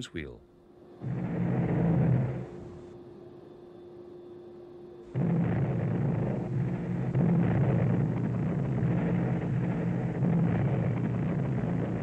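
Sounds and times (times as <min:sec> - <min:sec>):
revolver cannon firing rapid bursts: 0:01.0 - 0:02.6, 0:05.1 - 0:12.0.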